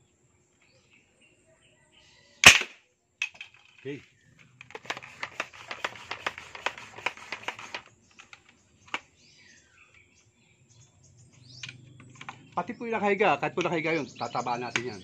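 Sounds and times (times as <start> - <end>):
toy gun clicking and rattling: 4.6 - 9.0.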